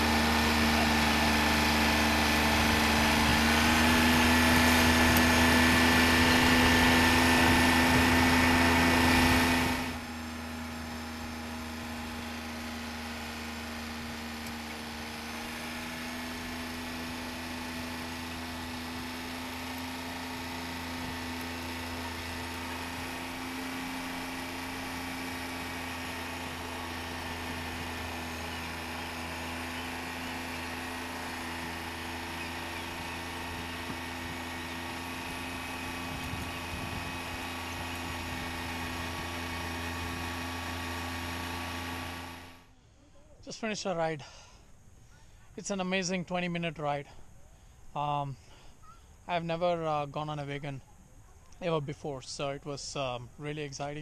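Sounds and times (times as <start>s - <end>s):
tractor engine running: 0.0s - 54.0s.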